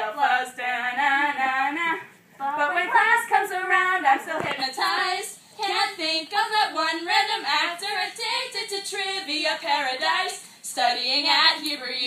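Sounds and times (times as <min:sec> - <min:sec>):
young women singing: 0:00.0 - 0:12.0.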